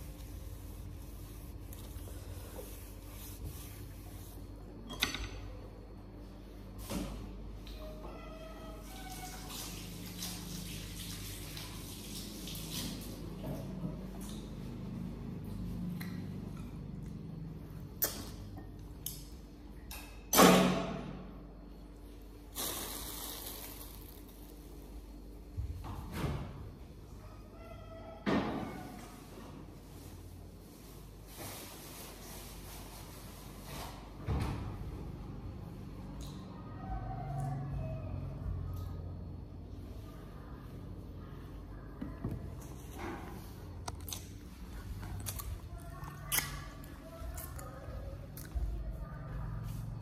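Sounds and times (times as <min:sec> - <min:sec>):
plastic bag crinkling: 0:22.5 - 0:24.8.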